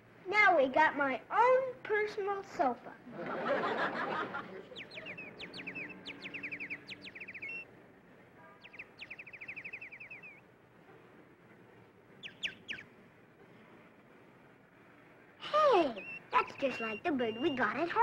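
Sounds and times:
songbird trilling: 0:04.6 - 0:07.7, 0:08.6 - 0:10.4, 0:12.2 - 0:12.9, 0:15.7 - 0:18.0.

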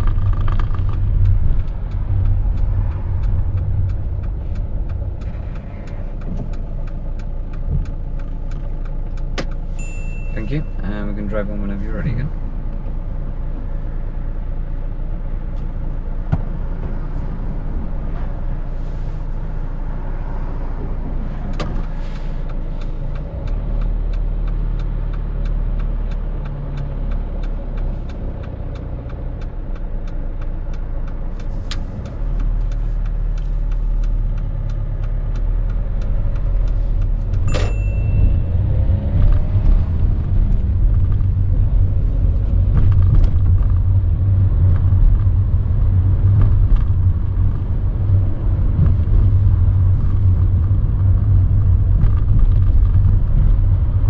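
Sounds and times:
light ticks: 0:00.0 - 0:10.1, 0:21.5 - 0:38.2
car engine and road rumble: 0:00.0 - 0:54.0
short high beep: 0:09.8 - 0:10.8, 0:37.5 - 0:38.5
sharp click: 0:31.4 - 0:38.3.

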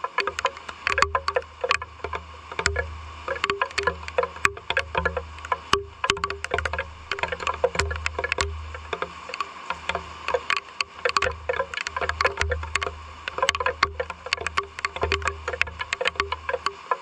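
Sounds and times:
raindrops tapping on hard surface: 0:00.0 - 0:17.0.

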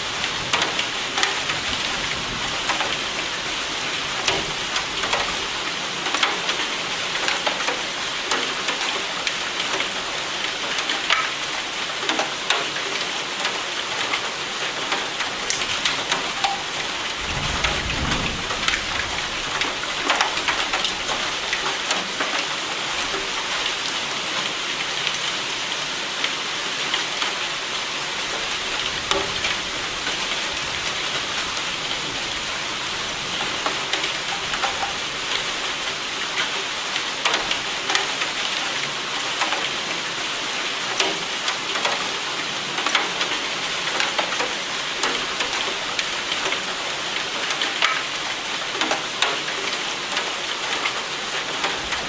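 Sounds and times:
heavy rain: 0:00.0 - 0:52.0
low rumble of thunder: 0:17.1 - 0:21.3.

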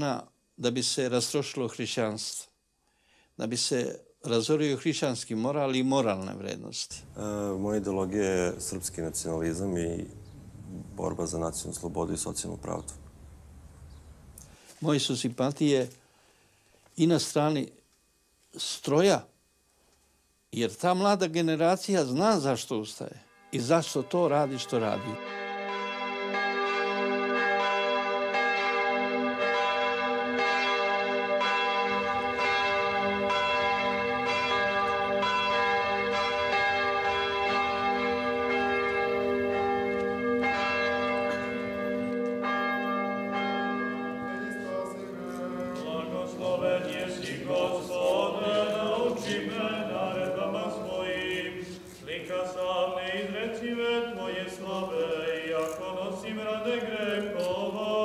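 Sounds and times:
church bells ringing: 0:07.0 - 0:10.2, 0:11.0 - 0:12.9, 0:22.1 - 0:58.0
voices singing a slow chant: 0:44.6 - 0:58.0.

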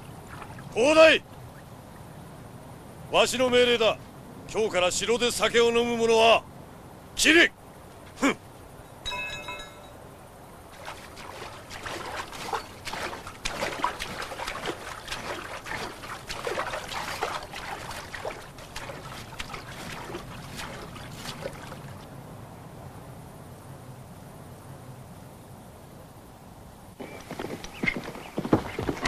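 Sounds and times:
splashing of wading in water: 0:00.0 - 0:02.1, 0:10.7 - 0:22.1
short held tone: 0:09.0 - 0:10.1.

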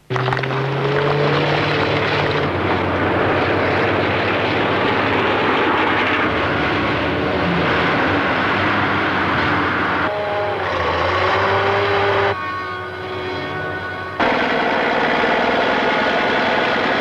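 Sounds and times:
dump truck driving past: 0:00.0 - 0:17.0
deep engine note: 0:06.1 - 0:17.0.

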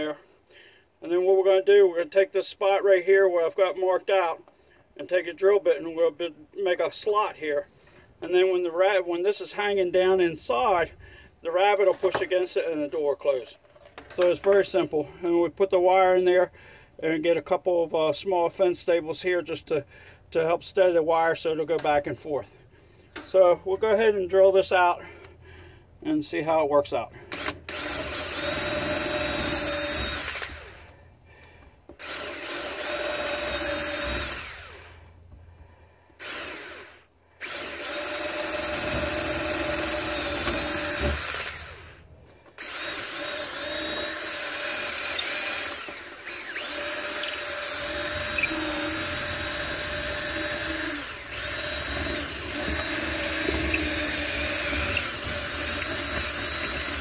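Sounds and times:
cordless drill boring plywood: 0:27.2 - 0:35.4, 0:36.0 - 0:57.0.

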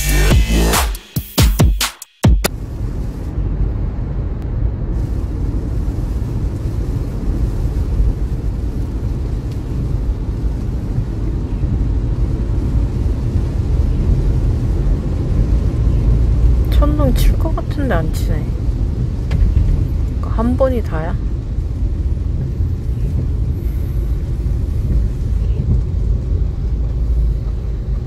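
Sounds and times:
tyre and road noise: 0:02.4 - 0:28.0
rain on car: 0:02.5 - 0:28.0.

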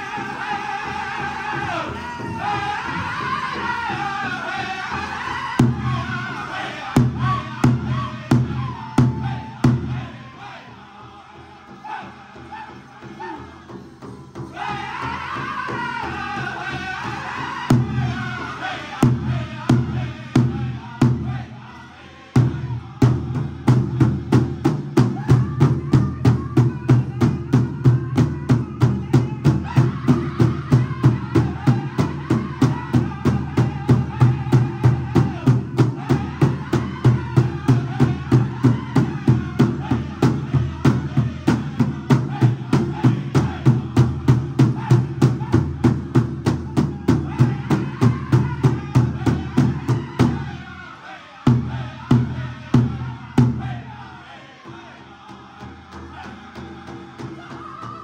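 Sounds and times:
group singing: 0:00.0 - 0:58.0
large drum beating: 0:22.4 - 0:50.6.

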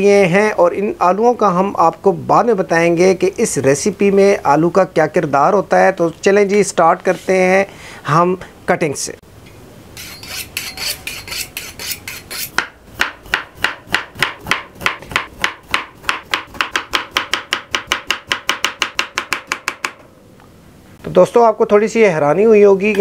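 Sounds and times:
knife scraping on sharpening steel: 0:10.0 - 0:12.6
knife chopping on wooden board: 0:10.6 - 0:20.0.

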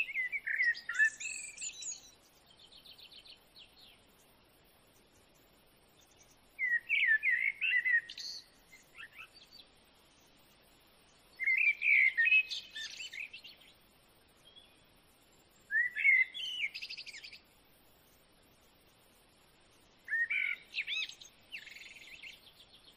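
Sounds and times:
bird twittering chirps: 0:00.0 - 0:04.3, 0:06.0 - 0:10.3, 0:11.2 - 0:14.8, 0:15.6 - 0:17.5, 0:20.0 - 0:22.9.

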